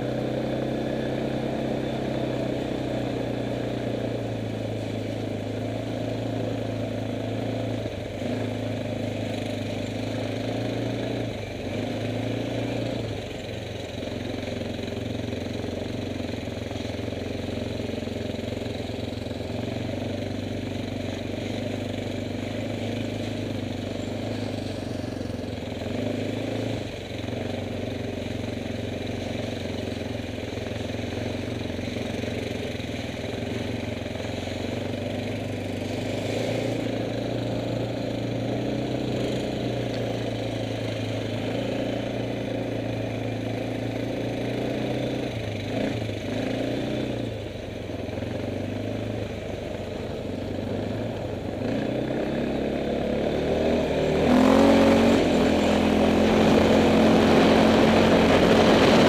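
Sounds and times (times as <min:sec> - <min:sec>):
quad bike engine running: 0:00.0 - 0:59.0.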